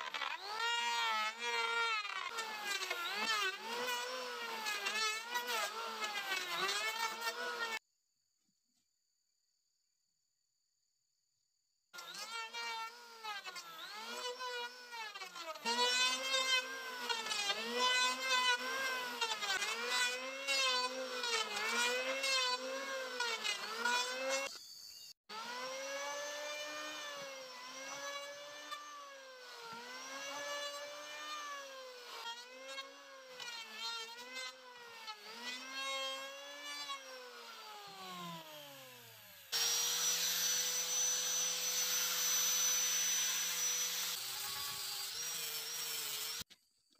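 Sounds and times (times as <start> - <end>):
electric hand planer cutting wood: 0.0 - 7.8, 12.0 - 24.6, 25.3 - 46.5
power tool humming and hissing: 12.0 - 46.5.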